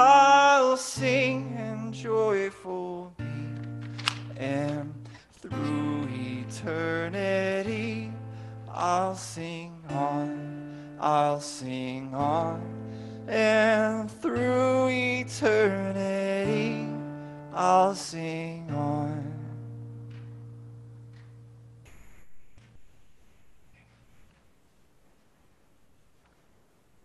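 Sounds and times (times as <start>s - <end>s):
man singing: 0.0s - 19.7s
acoustic guitar strumming: 0.0s - 24.2s.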